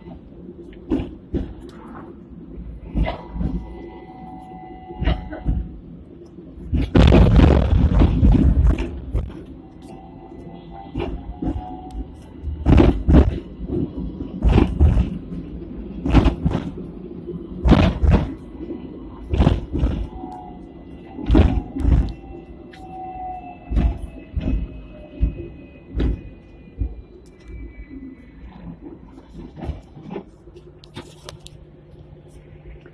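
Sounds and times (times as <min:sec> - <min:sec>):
tram rumble: 0:00.0 - 0:32.9
tram wheels knocking over track: 0:06.7 - 0:09.4, 0:12.6 - 0:15.3, 0:16.0 - 0:16.8, 0:17.6 - 0:18.4, 0:19.3 - 0:20.2.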